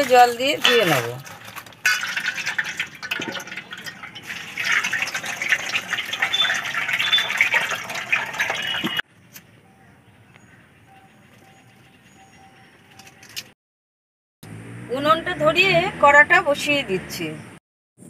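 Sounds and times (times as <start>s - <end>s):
water splashing over vegetables: 0.0s - 9.0s.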